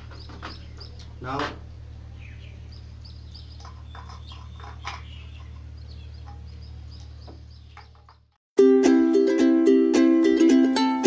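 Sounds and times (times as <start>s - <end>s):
steady low hum: 0.0s - 7.8s
small birds chirping: 0.0s - 8.4s.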